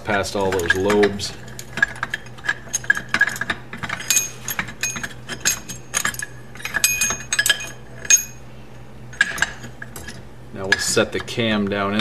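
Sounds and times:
metal camshaft clinking and knocking: 1.8 - 8.4.

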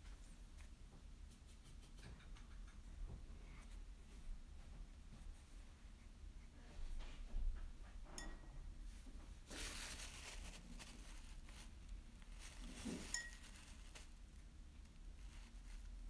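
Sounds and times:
light clink: 8.1 - 8.6, 13.0 - 13.6.

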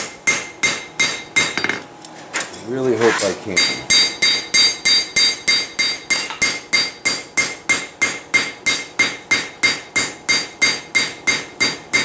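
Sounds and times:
hammer striking metal on anvil: 0.0 - 1.8, 3.6 - 12.0.

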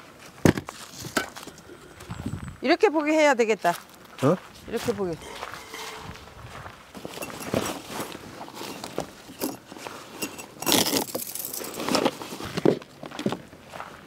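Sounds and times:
camping gear clinking and knocking: 5.2 - 12.8.

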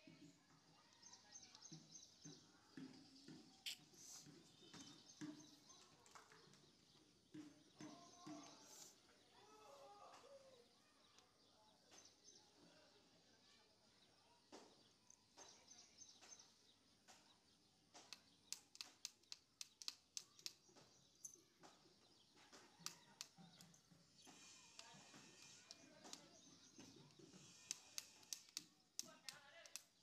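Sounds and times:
tiny sharp clicks: 18.0 - 20.6, 24.6 - 30.0
fingers rustling through hair: 22.8 - 30.0.

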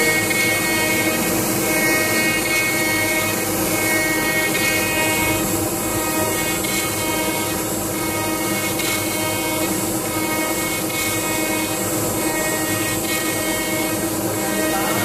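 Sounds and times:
router spindle whine: 0.0 - 15.0
wood cutting hiss: 0.0 - 15.0.

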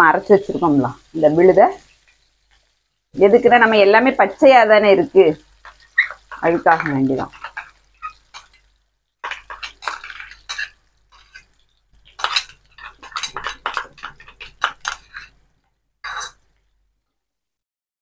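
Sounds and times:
spoon scraping and clinking on bowl: 5.6 - 8.6, 9.2 - 15.4, 16.1 - 16.4.

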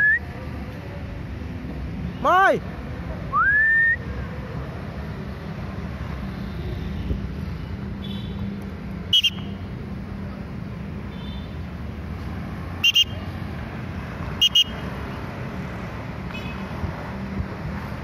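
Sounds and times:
road traffic rumble: 0.0 - 18.0
person whistling: 3.3 - 4.0.

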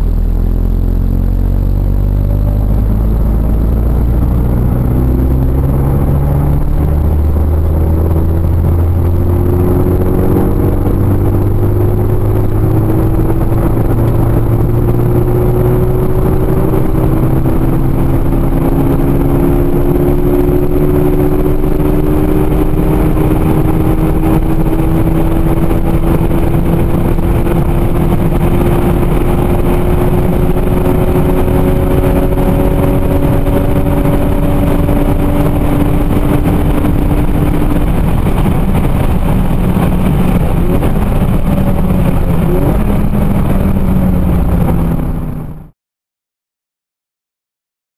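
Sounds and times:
car engine accelerating: 0.0 - 45.8.

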